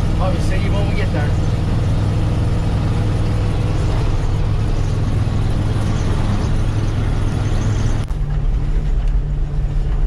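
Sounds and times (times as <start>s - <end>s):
truck engine running: 0.0s - 10.0s.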